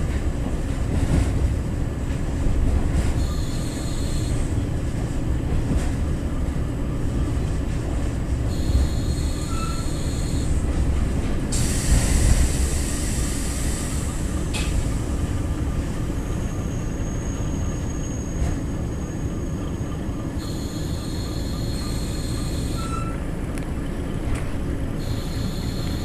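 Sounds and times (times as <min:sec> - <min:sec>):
diesel engine low rumble: 0:00.0 - 0:26.0
train wheels on rails: 0:00.0 - 0:26.0
loud hiss: 0:11.5 - 0:14.1.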